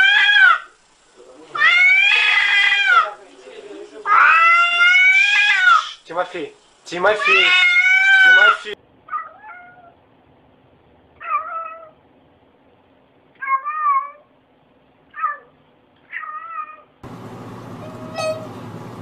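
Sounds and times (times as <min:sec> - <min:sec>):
cat meowing: 0:00.0 - 0:00.7, 0:01.6 - 0:03.1, 0:04.1 - 0:06.0, 0:07.2 - 0:10.0, 0:11.2 - 0:12.0, 0:13.4 - 0:14.3, 0:15.1 - 0:16.9, 0:17.8 - 0:18.5.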